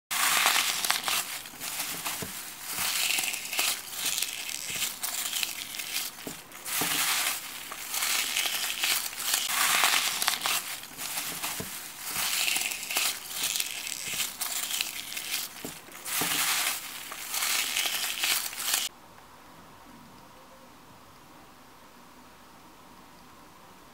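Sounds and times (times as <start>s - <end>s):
slime crunching and crackling: 0.1s - 18.9s.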